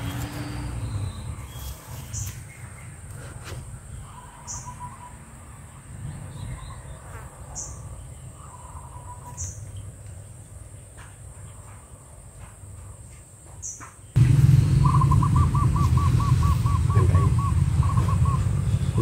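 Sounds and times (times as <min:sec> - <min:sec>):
loud low rumble: 0:14.2 - 0:19.0
bird calling repeated notes: 0:14.8 - 0:19.0
high bird chirps: 0:14.8 - 0:19.0.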